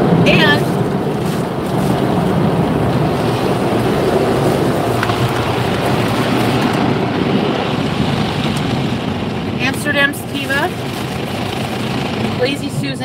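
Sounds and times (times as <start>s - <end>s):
car wash rushing water: 0.0s - 13.0s.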